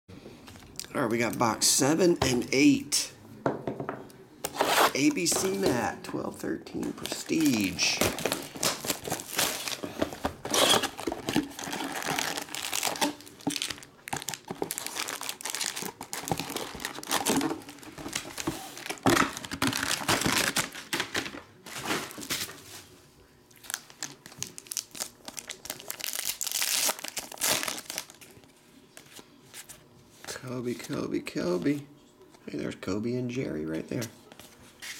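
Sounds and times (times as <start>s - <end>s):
cards rustling: 4.4s - 22.8s
foil packs rustling: 4.5s - 22.9s, 23.6s - 28.4s
shrink-wrap crinkling and tearing: 6.8s - 22.6s, 23.5s - 28.4s.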